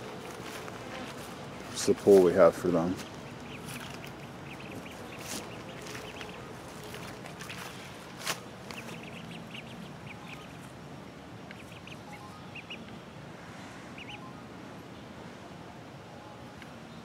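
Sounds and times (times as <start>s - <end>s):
ducklings peeping: 0.0s - 10.8s, 11.4s - 13.0s, 13.9s - 14.9s.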